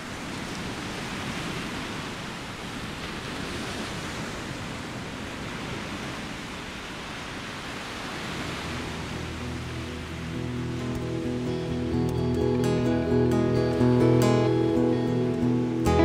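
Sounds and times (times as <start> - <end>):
small waves washing up stony beach: 0.0 - 12.8
soft music: 8.9 - 16.0.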